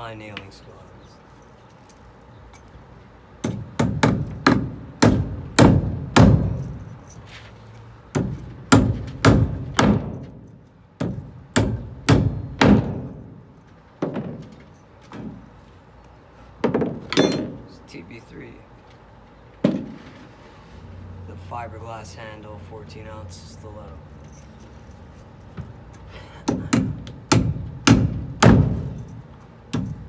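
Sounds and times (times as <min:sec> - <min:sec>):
hammer driving nails into wood: 0:03.4 - 0:06.6, 0:08.1 - 0:10.4, 0:26.4 - 0:28.9.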